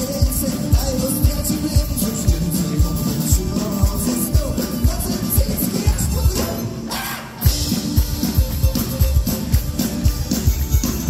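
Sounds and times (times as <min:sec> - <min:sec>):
live band playing: 0:00.0 - 0:11.0.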